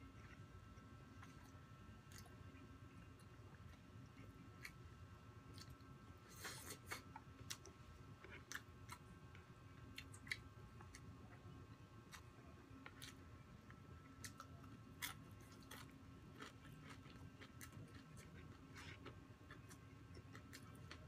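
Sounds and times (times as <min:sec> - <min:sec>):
person chewing: 0:01.1 - 0:04.9, 0:05.5 - 0:11.1, 0:14.1 - 0:21.0.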